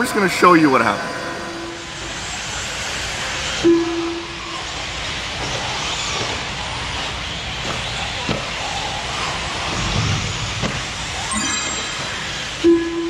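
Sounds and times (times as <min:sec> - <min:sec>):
faint motor whines: 0:01.2 - 0:10.9
rc cars racing on dirt: 0:04.6 - 0:11.0
short steady tone: 0:11.3 - 0:13.0.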